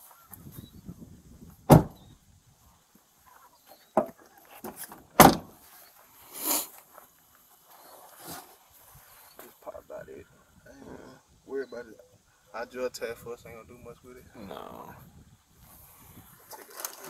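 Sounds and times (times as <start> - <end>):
car doors clunking: 1.7 - 2.0, 4.7 - 5.6
brief rustle: 15.6 - 17.0.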